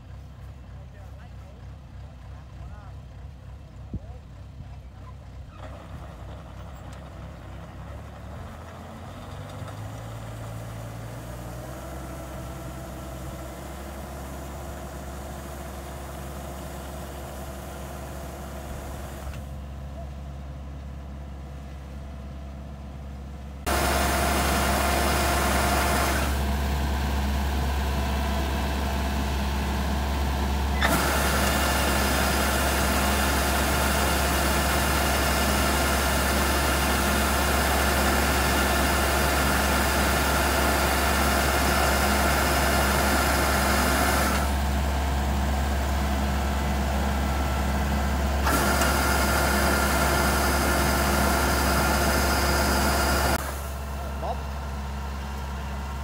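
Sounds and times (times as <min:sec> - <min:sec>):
combine harvester diesel engine: 0:00.0 - 0:56.0
auger discharging rice: 0:09.8 - 0:19.6, 0:23.6 - 0:56.0.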